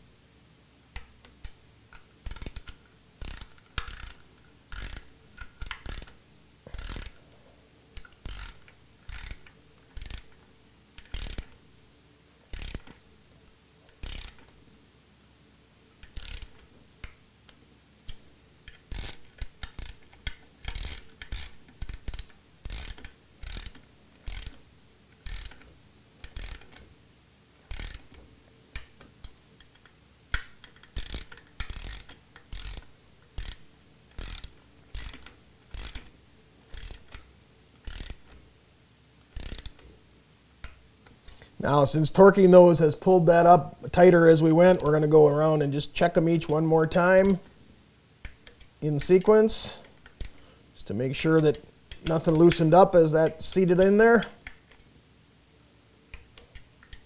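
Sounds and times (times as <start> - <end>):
ratcheting torque wrench clicking: 1.0 - 7.2, 8.0 - 10.4, 11.0 - 11.6, 12.5 - 13.0, 13.9 - 14.5, 16.0 - 16.7, 18.0 - 26.9, 27.7 - 28.2, 28.8 - 36.1, 36.7 - 38.3, 39.4 - 39.8.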